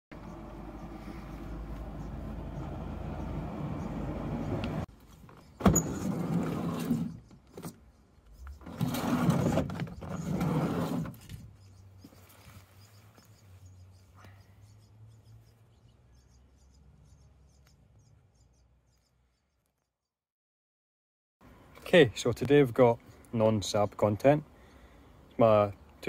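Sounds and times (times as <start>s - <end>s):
metal grinding on door track: 5.6s - 7.7s, 8.6s - 11.2s.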